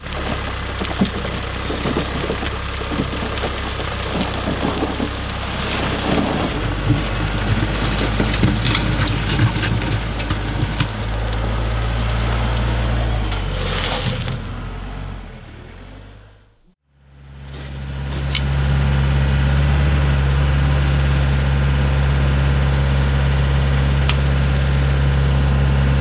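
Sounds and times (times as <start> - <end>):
stones clattering down: 0.0 - 11.9
gravel pouring from loader bucket: 0.0 - 14.5
tractor diesel engine running: 0.0 - 26.0.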